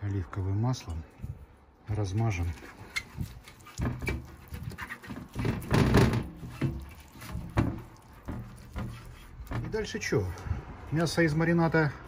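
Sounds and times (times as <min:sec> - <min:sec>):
pastry brush scraping tray: 0:02.7 - 0:10.0.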